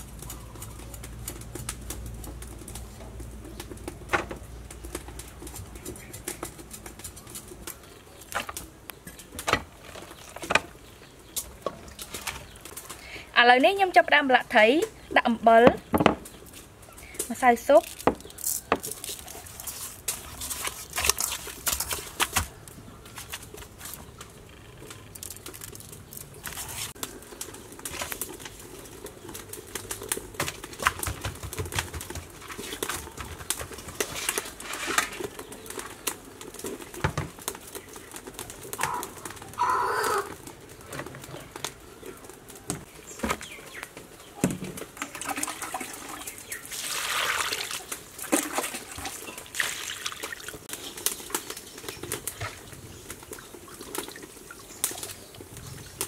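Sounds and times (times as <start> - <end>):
water pouring into bowl: 45.0 - 50.5.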